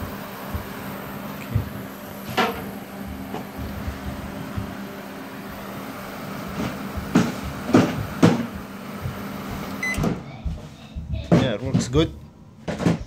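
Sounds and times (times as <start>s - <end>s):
microwave oven humming: 0.0s - 13.0s
knocks: 7.0s - 8.6s.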